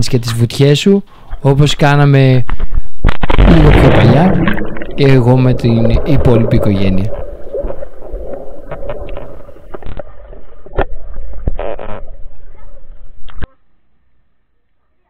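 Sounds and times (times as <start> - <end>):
underwater rumbling: 3.0 - 13.5
bubbling underwater: 3.2 - 13.4.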